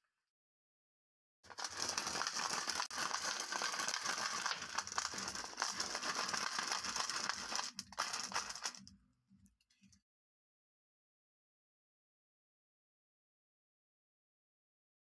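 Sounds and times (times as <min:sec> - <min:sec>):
glass marbles clattering: 0:01.5 - 0:08.8.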